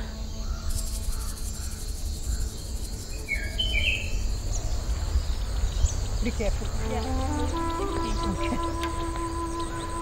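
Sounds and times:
bird chirps: 0.0 - 10.0
insects pulsing trill: 0.0 - 10.0.

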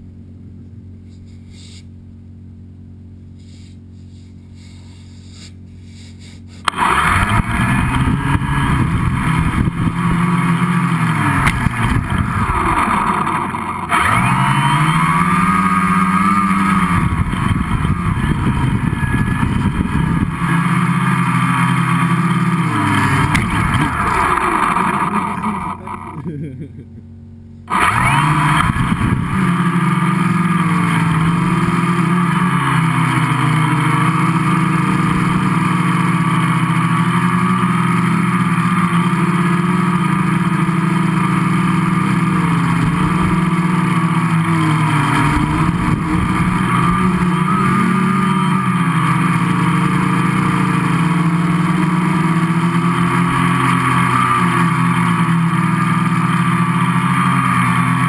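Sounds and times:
quadcopter motors buzzing: 3.3 - 26.8, 27.7 - 58.0.

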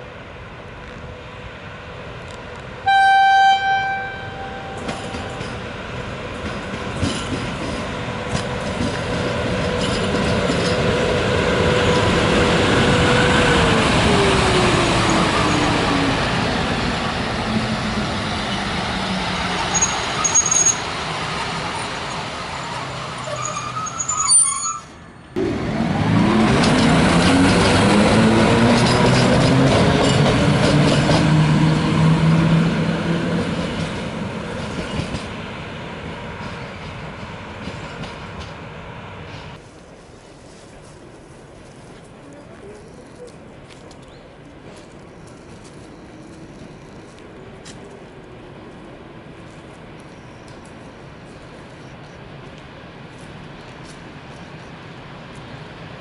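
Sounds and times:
locomotive whine: 0.0 - 39.6, 41.6 - 56.0
locomotive horn: 2.8 - 5.2
locomotive running noise: 3.6 - 56.0.

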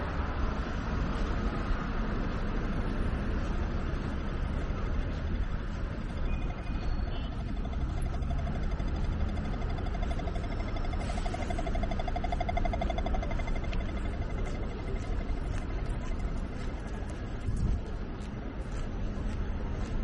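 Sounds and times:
traffic rumble: 0.0 - 20.0
faint rapidly pulsing tone: 5.9 - 17.1.

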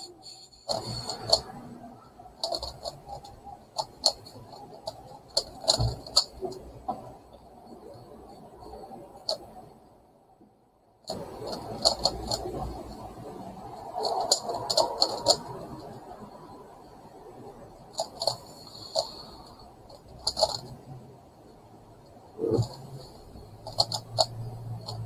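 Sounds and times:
plastic puzzle clicking: 2.4 - 6.6, 11.1 - 13.0, 13.8 - 16.0, 17.9 - 19.3, 19.9 - 20.8, 23.6 - 25.0.

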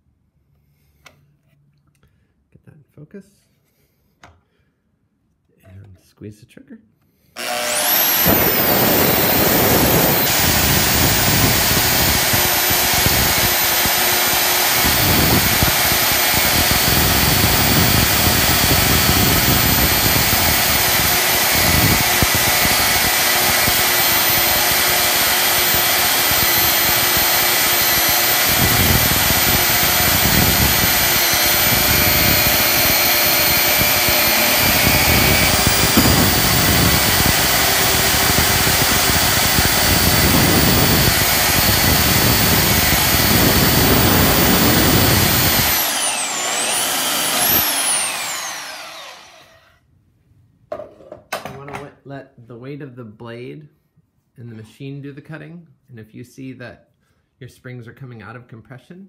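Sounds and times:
bandsaw cutting steel: 7.4 - 49.8
high whine: 7.7 - 49.3.

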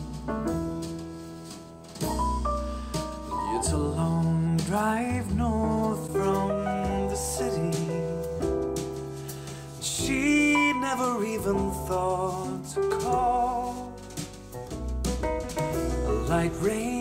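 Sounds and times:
pop song with sung vocal: 3.5 - 8.4, 9.3 - 14.0, 15.9 - 17.0.

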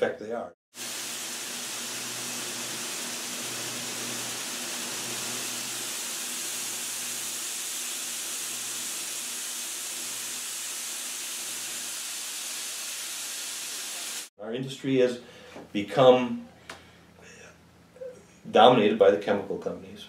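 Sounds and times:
seed rushing through machinery: 0.8 - 14.3.

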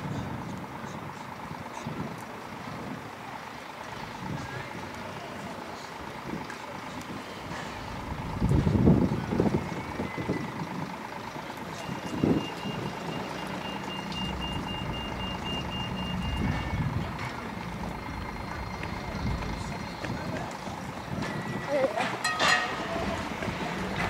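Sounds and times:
wind buffeting microphone: 4.0 - 24.0
reversing alarm beeping: 9.2 - 23.3.

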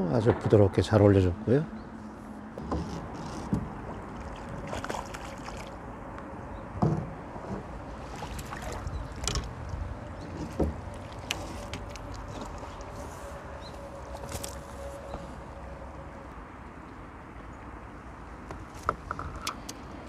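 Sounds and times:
water splashing and sloshing: 0.2 - 20.0
sharp splashes or knocks: 3.6 - 5.8.

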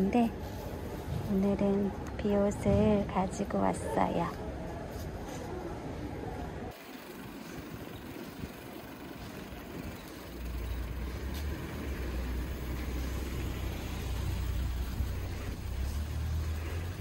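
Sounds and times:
bicycle tyres hissing on wet road: 6.7 - 17.0.

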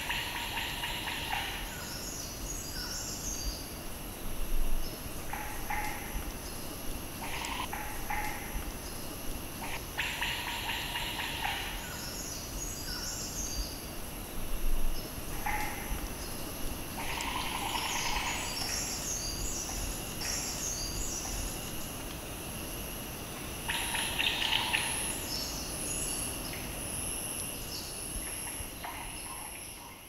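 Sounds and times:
bird calls: 0.0 - 3.7, 9.6 - 13.8, 15.0 - 21.8, 23.7 - 26.2
insects singing: 0.0 - 30.0.

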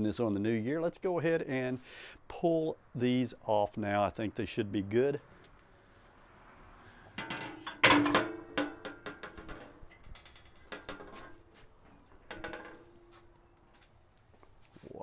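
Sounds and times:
metal clanging and clinking: 7.0 - 13.6.

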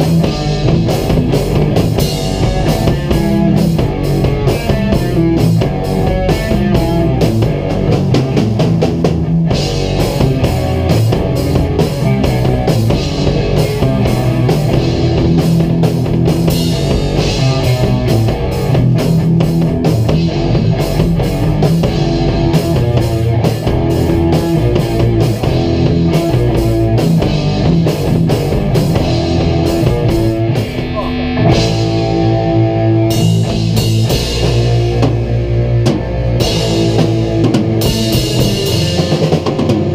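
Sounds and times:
drumming: 0.0 - 39.9
electric guitar notes: 0.0 - 39.9.

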